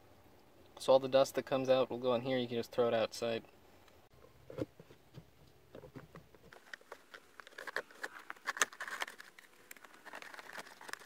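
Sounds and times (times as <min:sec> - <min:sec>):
air filter scraping against plastic: 0:04.4 - 0:11.0.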